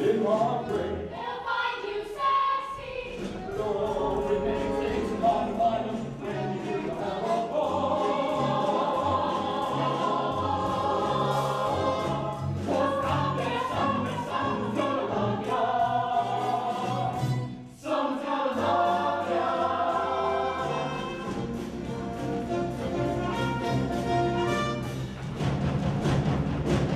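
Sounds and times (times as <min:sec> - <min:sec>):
chorus and soloists singing: 0:00.0 - 0:25.0
instrumental accompaniment: 0:18.6 - 0:26.9.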